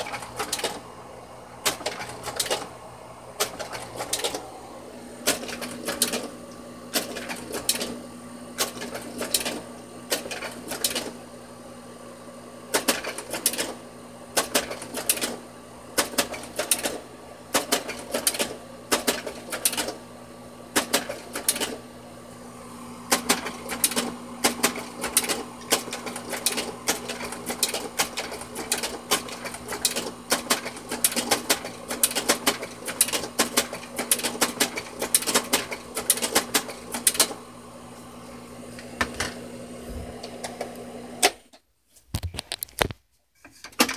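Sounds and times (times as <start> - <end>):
slide projector clacking: 0.0 - 0.8, 1.6 - 2.7, 3.4 - 4.5, 5.2 - 6.3, 12.7 - 15.4, 16.0 - 20.0, 20.7 - 21.8, 23.1 - 37.4
motor hum: 0.0 - 32.5, 33.2 - 41.4.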